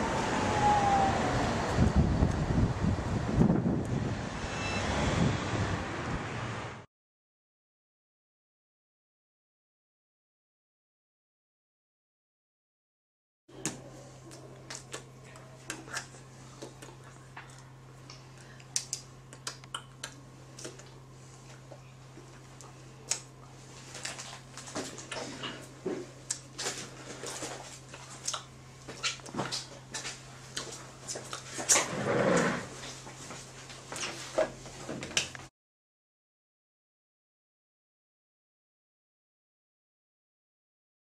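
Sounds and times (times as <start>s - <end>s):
loud noise: 0.0s - 2.2s
low electrical hum: 13.5s - 35.5s.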